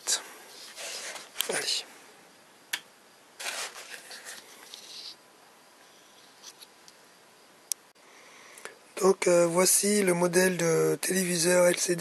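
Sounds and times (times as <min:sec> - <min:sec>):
soft rustling handling noise: 0:00.5 - 0:01.9, 0:03.4 - 0:05.2.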